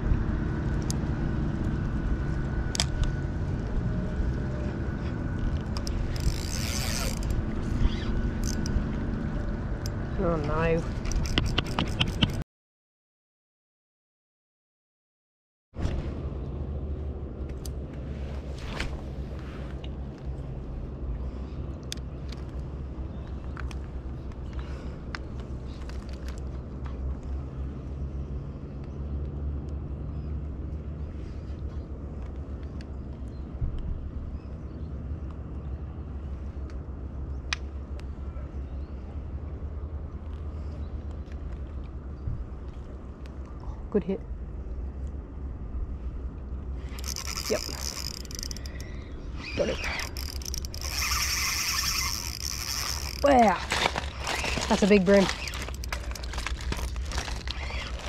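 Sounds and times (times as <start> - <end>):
low steady rumble: 0.0 - 12.4, 15.8 - 58.0
fishing reel gears whirring and clicking: 5.6 - 8.7, 46.8 - 58.0.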